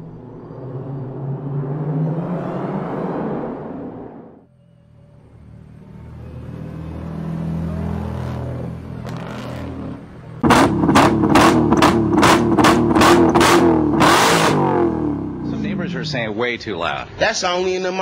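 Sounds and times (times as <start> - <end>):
car engine at high revs: 0.0 - 4.4, 5.7 - 16.1
low rumble: 0.0 - 4.6
exhaust pops: 10.4 - 14.9.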